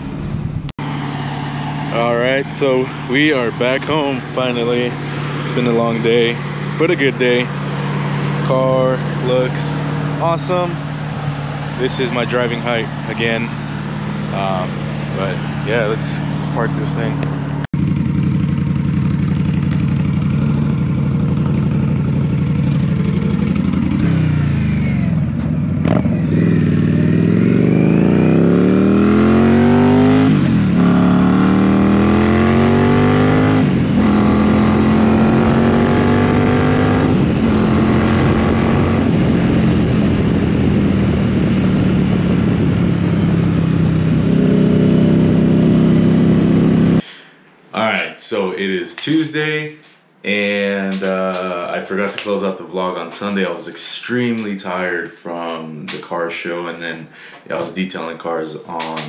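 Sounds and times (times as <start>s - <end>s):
motorcycle engine accelerating: 0.0s - 47.0s.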